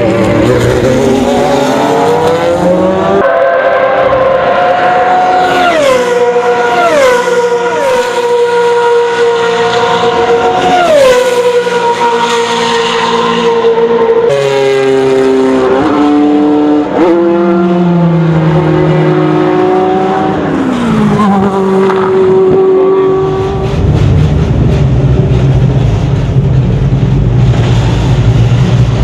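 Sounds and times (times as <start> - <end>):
race car engine at full throttle: 0.0 - 29.0
low rough engine rumble: 23.1 - 29.0.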